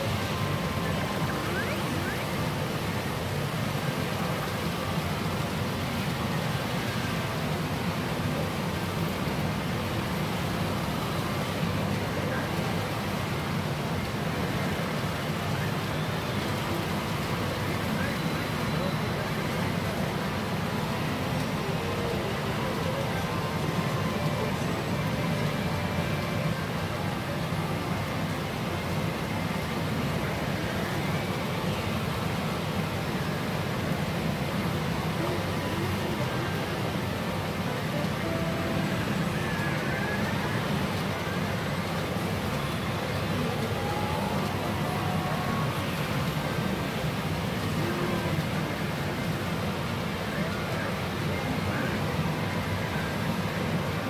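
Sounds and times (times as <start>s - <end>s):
pachinko machines and balls din: 0.4s - 2.4s.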